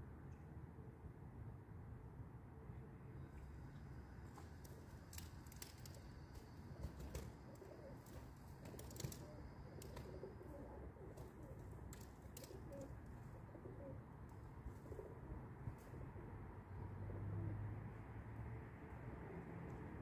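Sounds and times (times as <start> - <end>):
pigeons cooing softly: 5.7 - 20.0.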